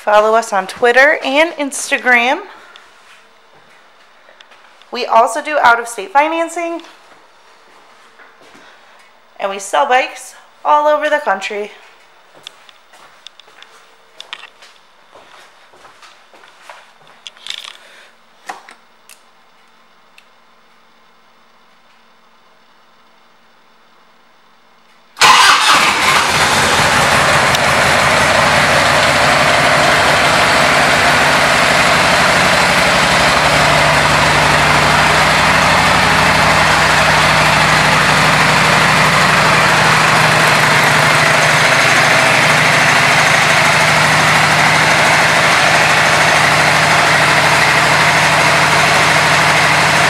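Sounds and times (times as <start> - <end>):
motorcycle engine starting and idling: 25.2 - 50.0.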